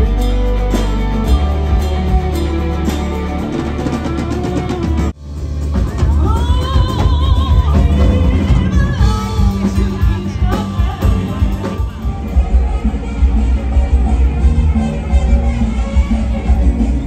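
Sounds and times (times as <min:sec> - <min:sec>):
drums: 0:00.0 - 0:17.0
keyboard: 0:00.0 - 0:17.0
woman singing into microphone: 0:05.8 - 0:12.7.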